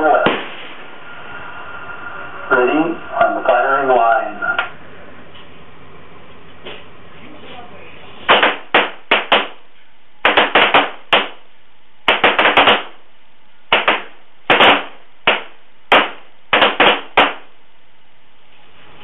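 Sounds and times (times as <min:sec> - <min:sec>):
pistol shots: 0:08.3 - 0:09.6, 0:10.2 - 0:11.4, 0:12.1 - 0:13.0, 0:13.7 - 0:17.5.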